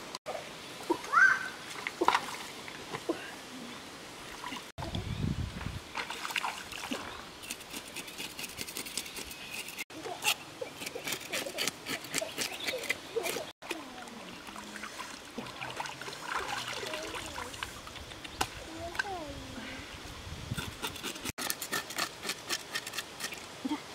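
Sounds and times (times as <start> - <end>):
stream water trickling: 0.7 - 9.0, 10.8 - 18.7.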